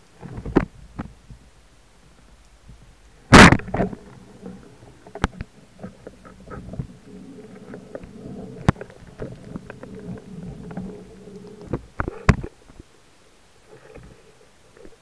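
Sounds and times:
underwater low hum: 0.0s - 15.0s
underwater clicks: 3.3s - 12.6s.

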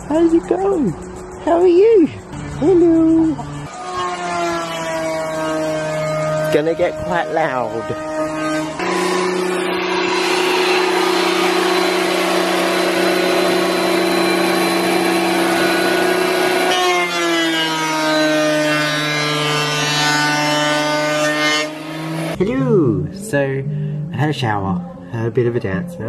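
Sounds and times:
thickness planer motor hum: 3.4s - 22.4s
rushing hiss of planer cutter: 5.2s - 22.4s.

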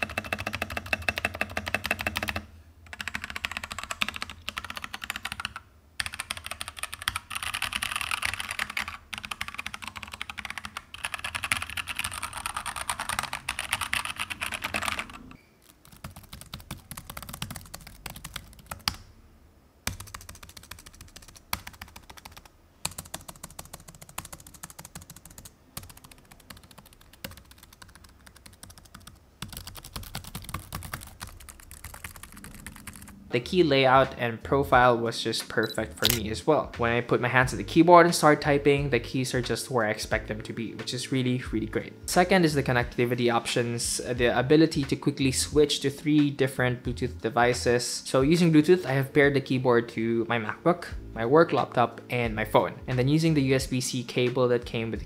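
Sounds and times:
mechanical keyboard typing: 0.0s - 19.0s, 19.9s - 33.2s, 36.0s - 36.2s
laptop keyboard typing: 0.0s - 19.1s, 19.8s - 33.2s, 36.0s - 36.2s.

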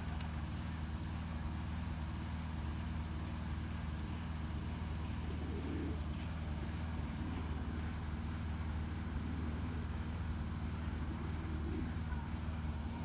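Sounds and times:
low mechanical hum: 0.0s - 13.0s
pigeon coo: 5.1s - 6.2s, 11.0s - 13.0s.

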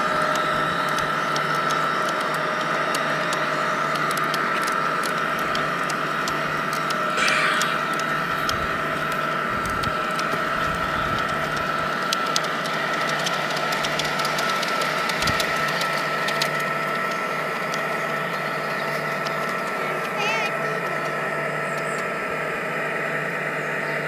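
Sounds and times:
model train wheels rumbling: 0.0s - 21.3s
high whine: 0.0s - 24.0s
low hum: 0.0s - 24.0s
sharp clicks: 0.2s - 22.1s.

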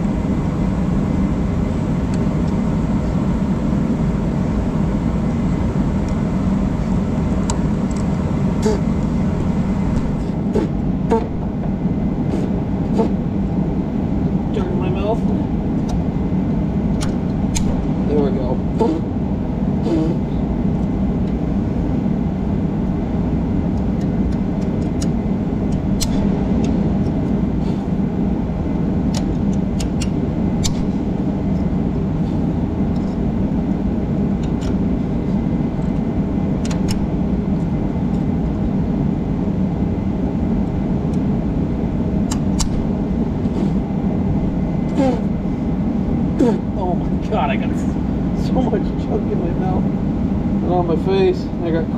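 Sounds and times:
low drone: 0.0s - 51.9s
metal pick clicking in bolt hole: 42.3s - 42.8s.

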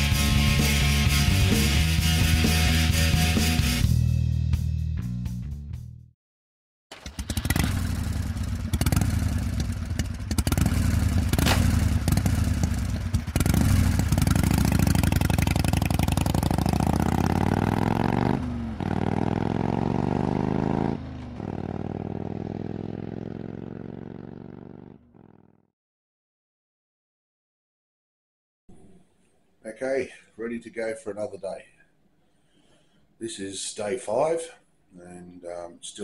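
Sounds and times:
motorcycle engine revving: 6.9s - 25.7s.

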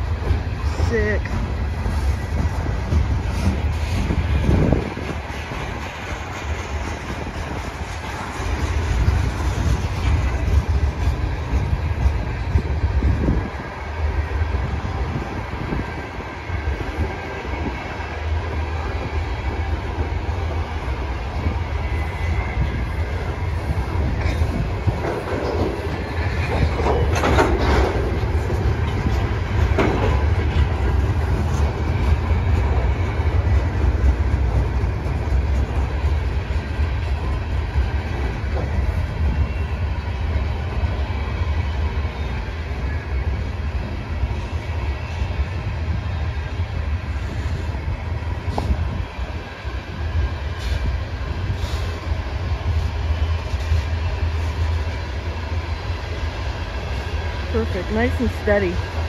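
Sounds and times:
freight train rolling past: 0.0s - 59.0s
wheels clacking over rails: 23.8s - 37.2s.

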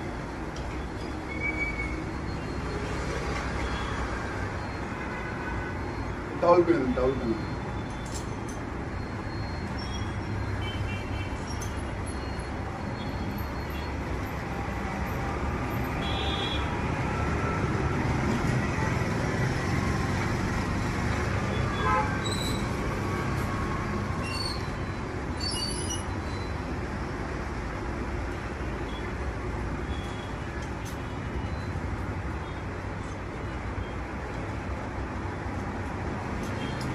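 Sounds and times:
road traffic rumble: 0.0s - 36.9s.

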